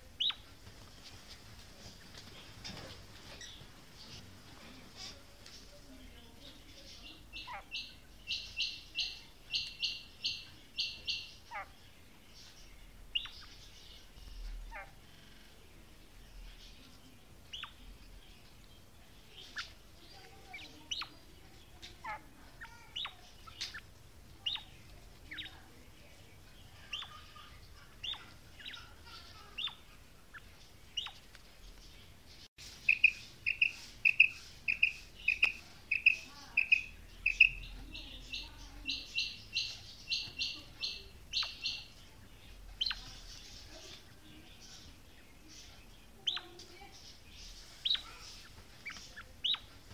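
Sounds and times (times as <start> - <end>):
quail chirping: 0.0 - 4.2, 6.4 - 15.7, 16.3 - 32.0, 32.6 - 49.9
quail piping notes: 32.6 - 42.0.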